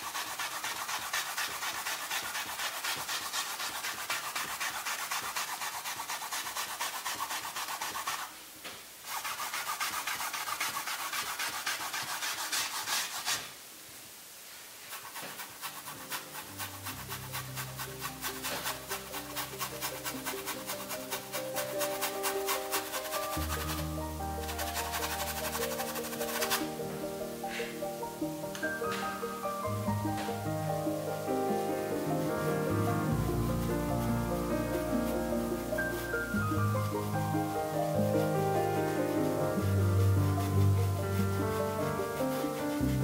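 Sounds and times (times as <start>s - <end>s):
cotton swab rubbing on canvas: 0.0s - 8.4s, 9.0s - 13.6s, 14.8s - 43.0s
soft music: 15.1s - 43.0s.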